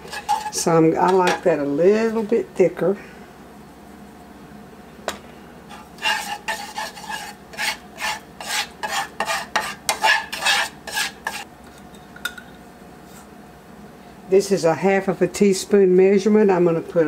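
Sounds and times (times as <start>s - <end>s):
spatula scraping skillet: 0.0s - 2.3s, 5.7s - 11.5s.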